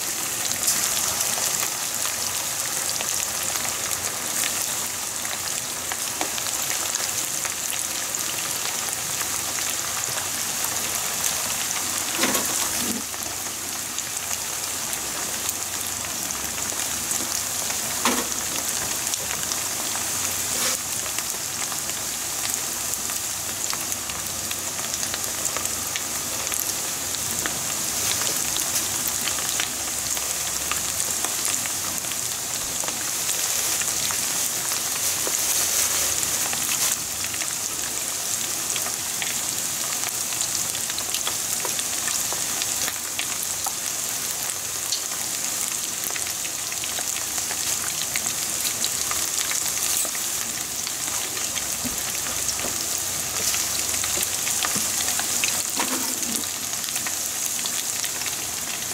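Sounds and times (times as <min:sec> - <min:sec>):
food deep-frying in hot oil: 0:00.0 - 0:58.9.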